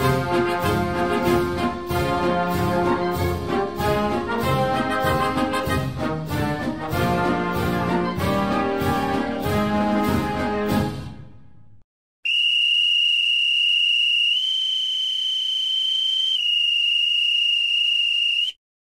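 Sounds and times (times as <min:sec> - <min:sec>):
brass music: 0:00.0 - 0:11.2.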